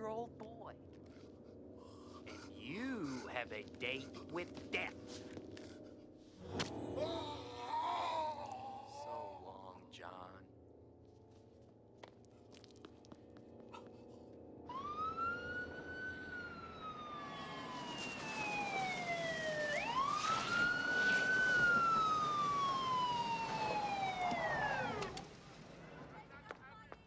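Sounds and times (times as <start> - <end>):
siren wailing: 14.6 - 25.3.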